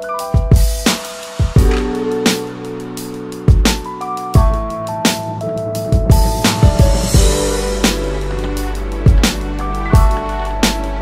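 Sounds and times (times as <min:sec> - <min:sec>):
electronic music held notes: 0:00.0 - 0:11.0
deep drum hits: 0:06.0 - 0:10.2.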